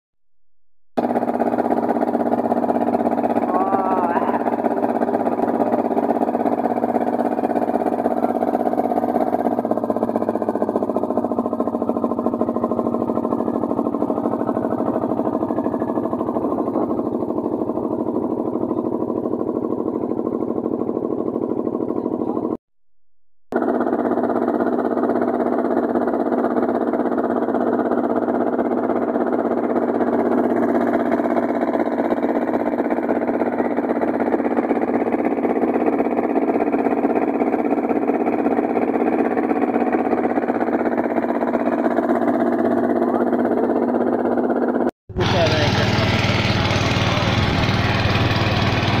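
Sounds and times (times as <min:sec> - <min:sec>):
boat engine droning: 0:01.0 - 0:22.6, 0:23.6 - 0:49.0.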